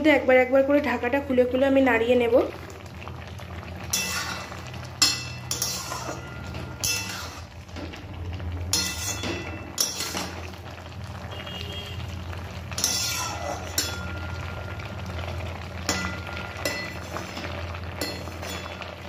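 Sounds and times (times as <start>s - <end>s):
food simmering: 1.8s - 19.0s
metal spatula scraping metal pan: 3.9s - 7.5s, 8.7s - 10.5s, 12.7s - 14.5s, 15.9s - 18.9s.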